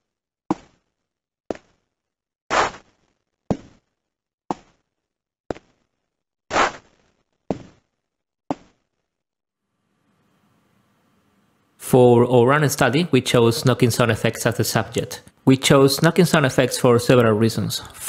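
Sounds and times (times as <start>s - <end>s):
synthesized footsteps: 0.5s - 9.1s.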